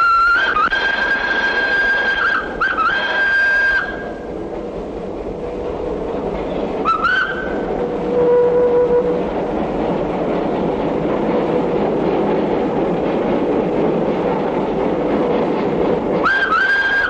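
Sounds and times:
steam whistle blowing: 0.0 - 4.2, 6.8 - 9.3, 16.2 - 17.0
tram running noise: 0.0 - 17.0.

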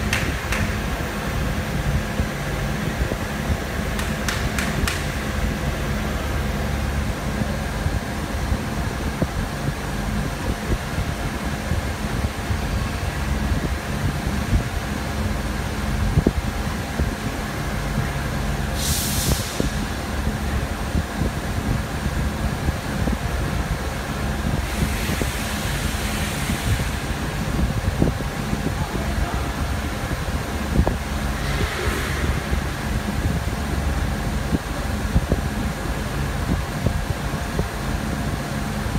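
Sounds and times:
machine hum: 0.0 - 18.9, 19.5 - 38.9
air hiss: 18.6 - 20.2, 24.6 - 27.7, 30.8 - 33.9.

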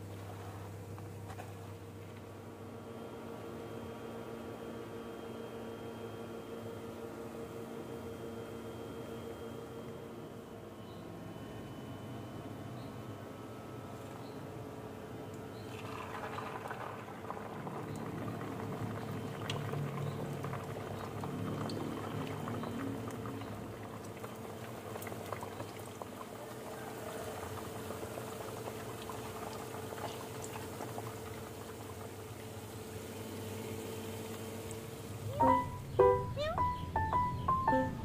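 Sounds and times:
food deep-frying in oil: 15.4 - 35.6.

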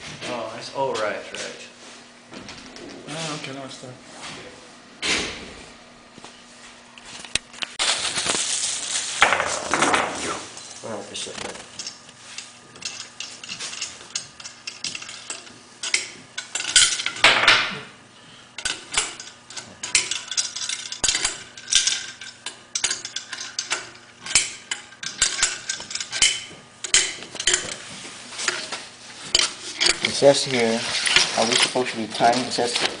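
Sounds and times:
metal scraping: 18.6 - 32.8.

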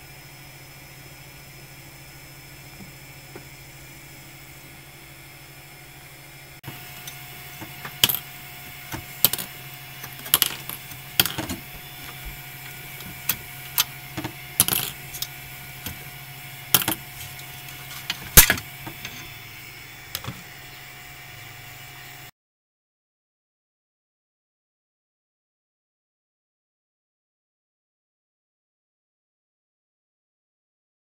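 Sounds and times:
steady low hum: 0.0 - 22.3.

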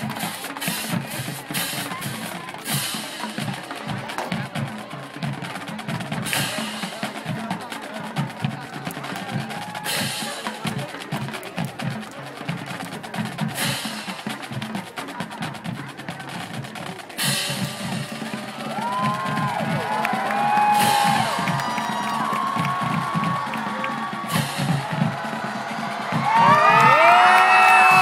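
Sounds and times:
snare drum strokes: 0.0 - 8.1, 8.8 - 28.0
crowd cheering and whooping: 9.2 - 10.1, 18.4 - 28.0.

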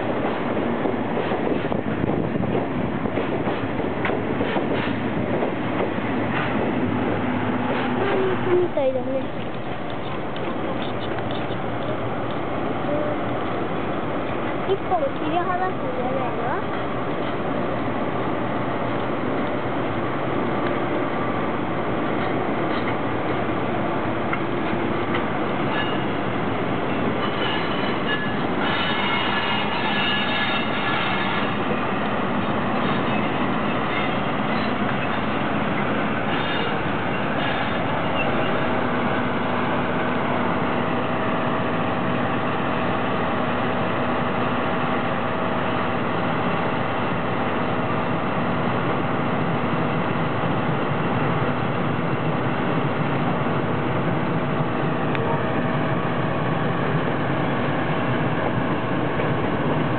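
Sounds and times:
train rumbling on rails: 0.0 - 59.9
wheels squealing: 25.7 - 26.2, 26.9 - 31.8, 32.4 - 38.8.

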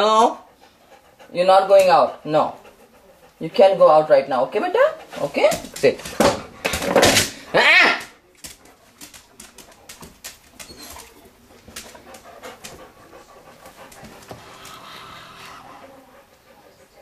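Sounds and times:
dog panting: 0.0 - 17.0.

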